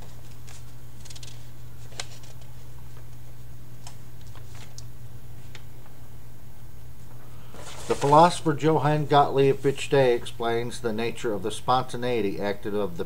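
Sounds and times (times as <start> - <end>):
paper rustling and crackling: 0.0 - 3.1, 4.2 - 4.8, 7.5 - 8.5
low room hum: 0.0 - 13.0.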